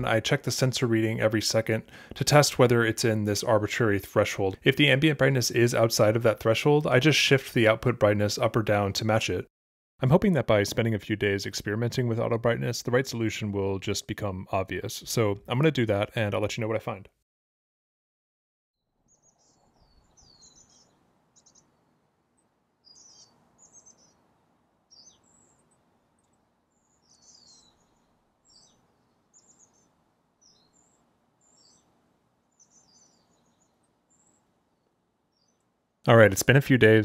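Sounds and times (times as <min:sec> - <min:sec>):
faint birdsong chirps and whistles: 0:19.0 - 0:35.8.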